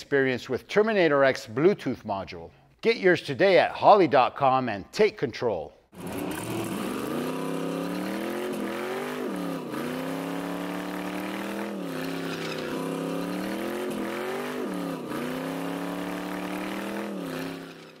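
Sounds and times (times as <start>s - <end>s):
drag car engine at high revs: 6.0s - 18.0s.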